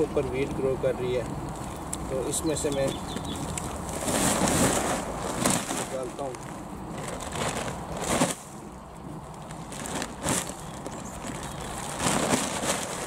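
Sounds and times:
bag and tarp rustling: 0:02.2 - 0:13.0
soil tipping onto plastic tarp: 0:02.8 - 0:13.0.

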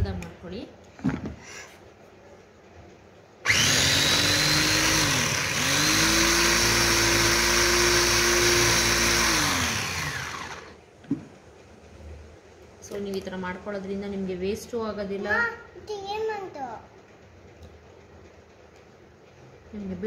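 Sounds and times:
electric mini chopper motor whirring: 0:03.5 - 0:10.8.

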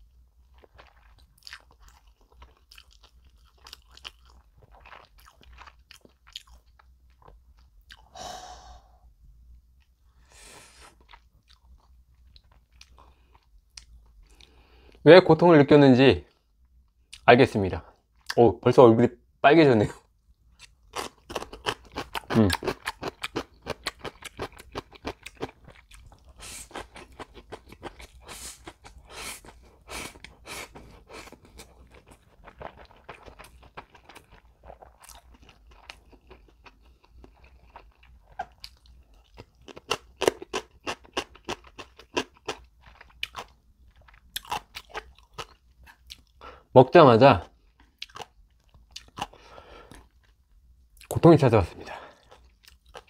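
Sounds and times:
crunching pickled radish: 0:20.6 - 0:46.3.

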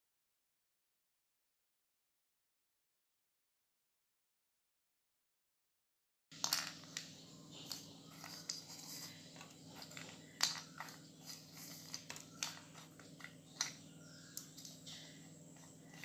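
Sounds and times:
steady low hum: 0:06.4 - 0:16.0.

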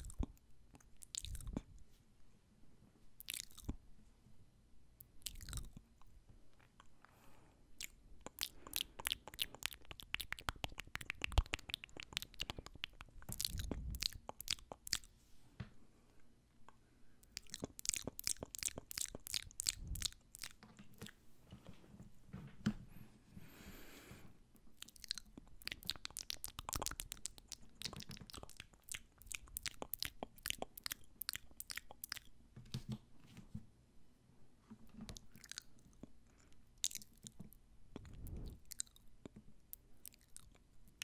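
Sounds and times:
lip and tongue smacking: 0:00.0 - 0:01.7, 0:03.2 - 0:03.8, 0:05.0 - 0:05.8, 0:07.8 - 0:15.1, 0:17.2 - 0:21.2, 0:24.7 - 0:32.3, 0:35.1 - 0:41.0.

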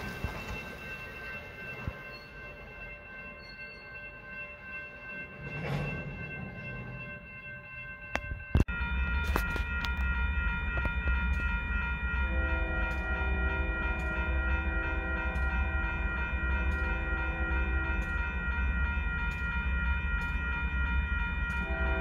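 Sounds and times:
crossing bell ringing: 0:00.0 - 0:22.0
freight train rumbling: 0:00.0 - 0:22.0
train horn chord: 0:12.2 - 0:18.2, 0:21.6 - 0:22.0.

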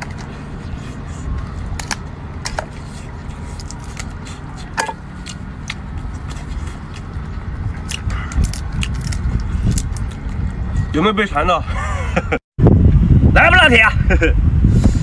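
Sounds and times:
lobster shell cracking: 0:07.8 - 0:10.4.

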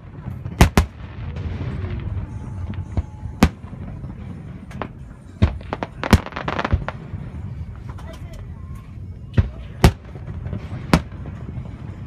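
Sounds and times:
fireworks bang: 0:00.0 - 0:08.0
low rumble: 0:00.0 - 0:12.0.

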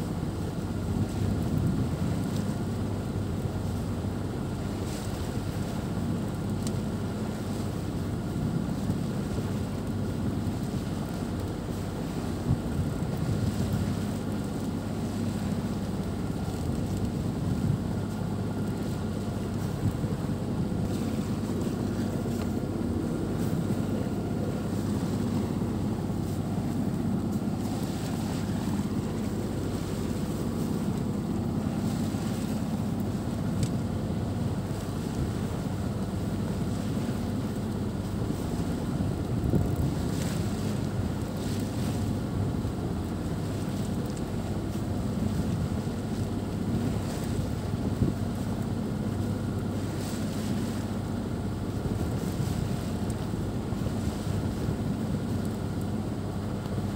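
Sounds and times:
sea water rushing along hull: 0:00.0 - 0:56.9
wind buffeting microphone: 0:37.9 - 0:42.7.

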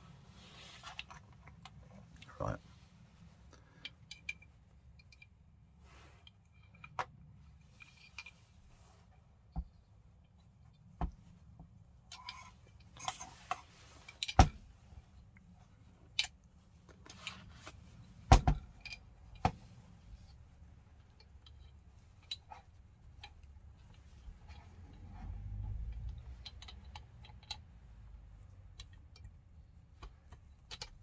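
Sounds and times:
clicks and knocks of small parts: 0:03.5 - 0:05.4, 0:21.0 - 0:31.0.

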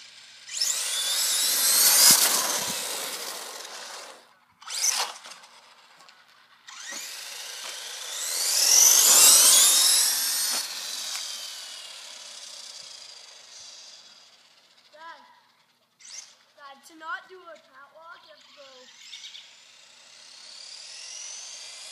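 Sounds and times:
rc truck electric motor whining: 0:00.0 - 0:21.9.

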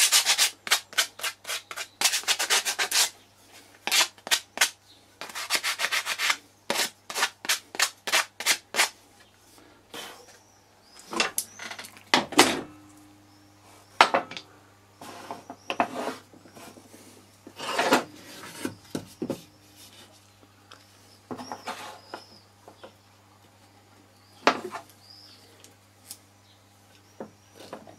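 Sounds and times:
sanding wood by hand: 0:00.0 - 0:03.1, 0:03.9 - 0:08.9.

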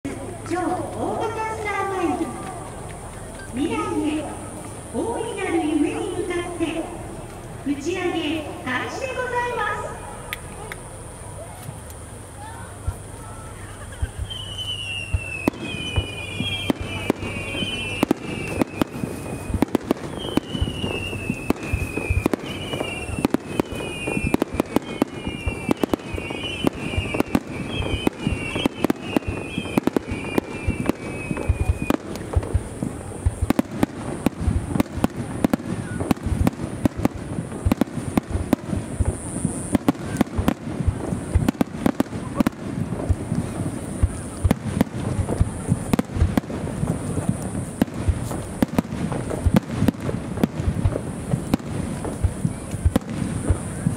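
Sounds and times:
fireworks booming and crackling: 0:00.0 - 0:53.9
falling whistling tones: 0:13.2 - 0:32.2.

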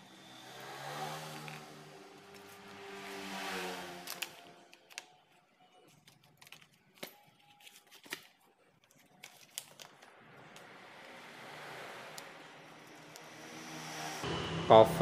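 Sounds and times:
clicks and knocks of parts handled: 0:05.9 - 0:10.0.

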